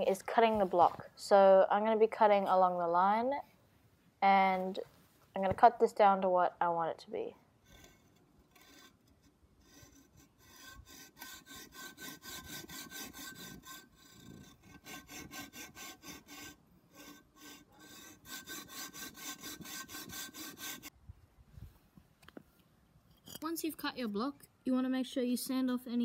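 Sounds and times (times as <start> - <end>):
hacksaw cutting concrete block: 7.7 - 20.9.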